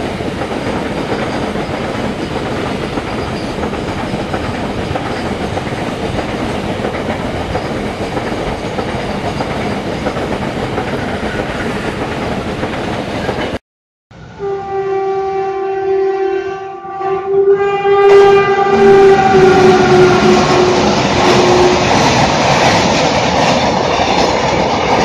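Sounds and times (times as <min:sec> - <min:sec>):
train wheels roaring on rails: 0:00.0 - 0:13.6, 0:14.2 - 0:15.8, 0:17.4 - 0:25.0
locomotive horn blast: 0:14.2 - 0:22.0.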